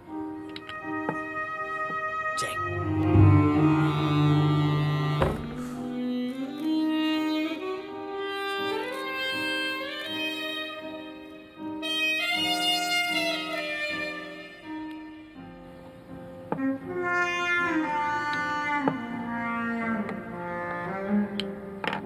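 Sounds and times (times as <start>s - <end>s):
slow sliding instrumental melody: 0.0s - 22.0s.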